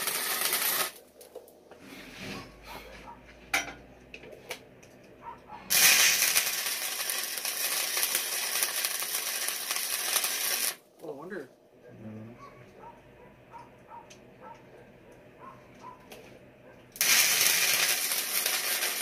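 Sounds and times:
welding arc sizzling and crackling: 0.0 - 1.2, 5.7 - 10.9, 17.0 - 19.0.

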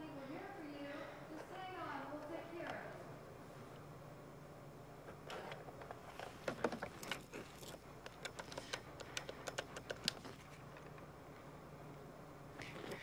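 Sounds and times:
faint steady hum: 0.0 - 13.0
telephone buttons clicking: 8.1 - 10.2.

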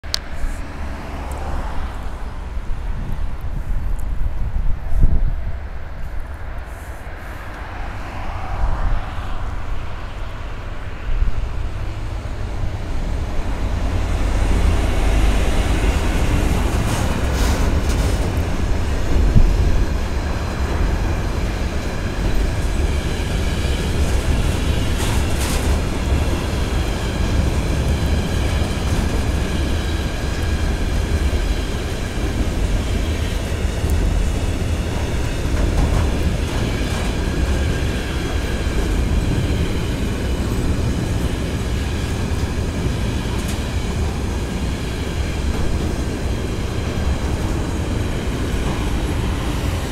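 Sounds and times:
diesel locomotive engine rumble: 0.0 - 49.9
wheels clattering over rail joints: 13.0 - 49.9.

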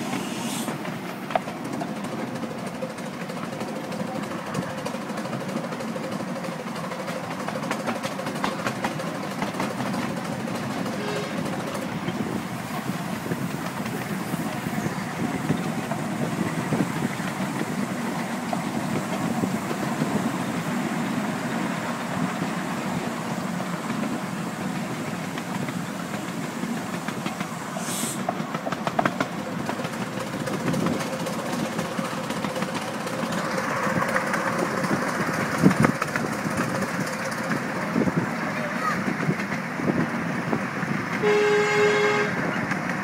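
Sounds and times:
short high hiss: 0.0 - 0.8, 27.8 - 28.3
train wheels clattering on track: 0.0 - 43.0.

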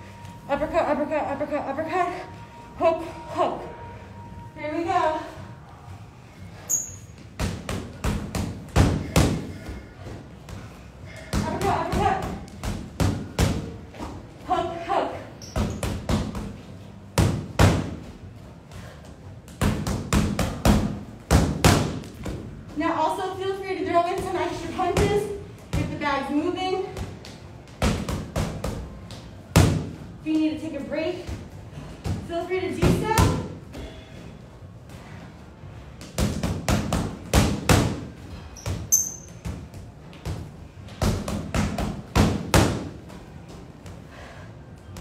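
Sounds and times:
high squeak: 6.6 - 7.2, 38.9 - 39.3.

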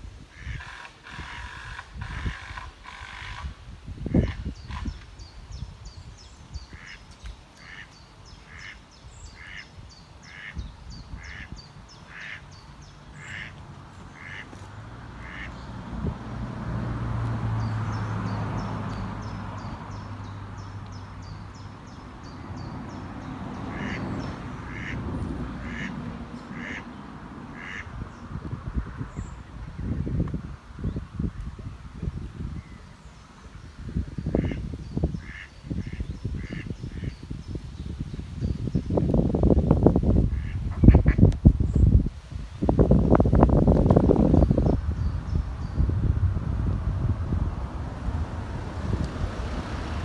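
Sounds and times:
ducks quacking: 0.3 - 3.5, 6.7 - 7.0, 7.6 - 10.6, 11.2 - 11.5, 12.1 - 12.5, 13.2 - 13.6, 14.2 - 14.6, 15.2 - 15.6, 23.7 - 25.0, 25.6 - 26.9, 27.5 - 27.9, 34.4 - 34.6, 35.2 - 37.2, 40.3 - 41.2.

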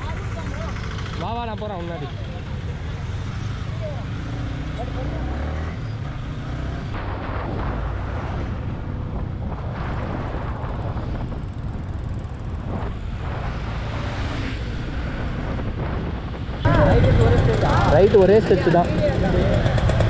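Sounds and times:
motorcycle engine rumble: 0.0 - 20.0
wind buffeting microphone: 6.6 - 20.0.

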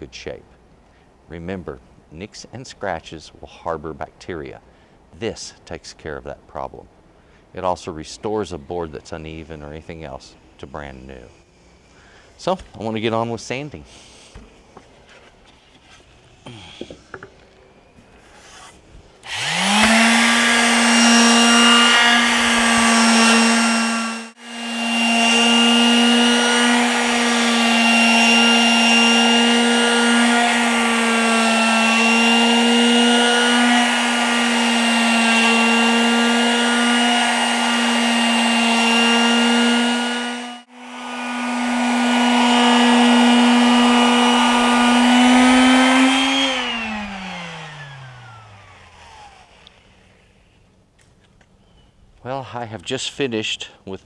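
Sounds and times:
electric sander humming: 18.6 - 50.3.

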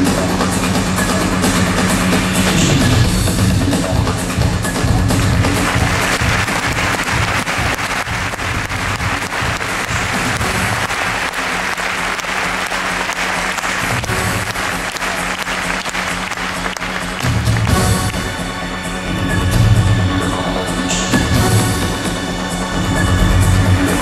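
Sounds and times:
loud music with low beat: 0.0 - 24.0
audience applauding: 5.2 - 18.6.

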